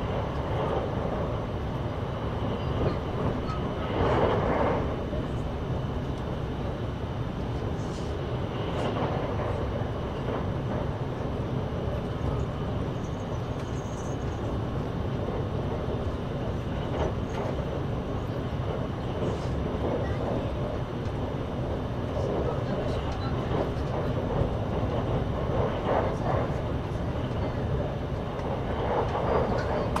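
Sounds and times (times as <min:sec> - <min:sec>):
faint train clicks: 0:00.0 - 0:30.0
train rumbling: 0:00.0 - 0:30.0.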